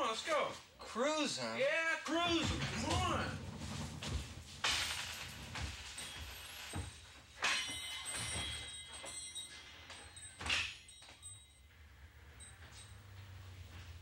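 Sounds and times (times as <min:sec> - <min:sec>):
door thunking and knocking: 0:02.2 - 0:07.0.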